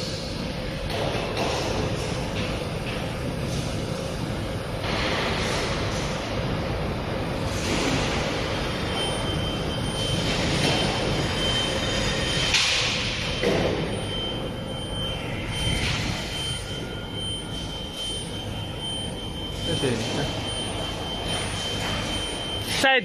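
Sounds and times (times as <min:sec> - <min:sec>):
factory machinery running: 0:00.0 - 0:23.0
faint high whine: 0:07.9 - 0:23.0.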